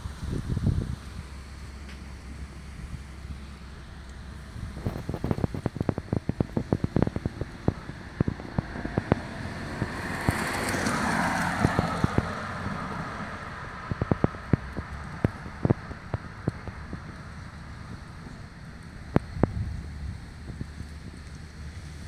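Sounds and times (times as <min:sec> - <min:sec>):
broad rushing noise: 0:00.0 - 0:22.0
sharp crackling clicks: 0:04.0 - 0:19.6.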